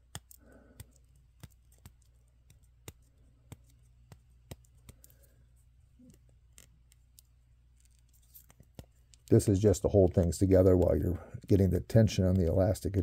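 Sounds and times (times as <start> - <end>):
small clicks of tape on plastic: 0.0 - 5.4, 6.0 - 9.4
low steady hum: 0.0 - 13.0.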